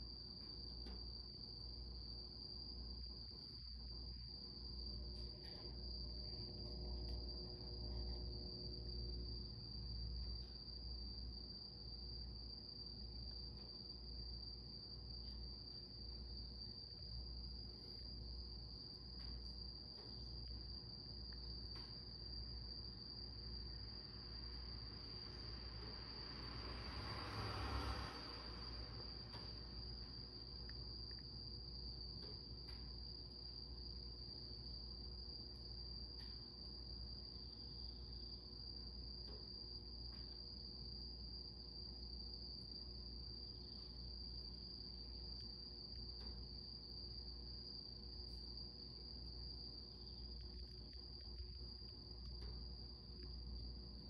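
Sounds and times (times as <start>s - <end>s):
cricket trilling: 0.0s - 54.0s.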